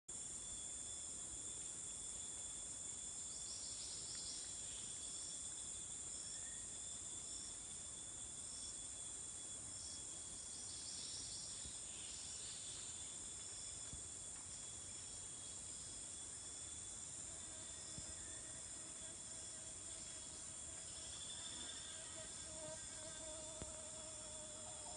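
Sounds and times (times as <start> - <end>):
insect chirps: 0.1 - 24.9
lower steady insect tone: 0.1 - 24.9
high-pitched insect drone: 14.6 - 24.9.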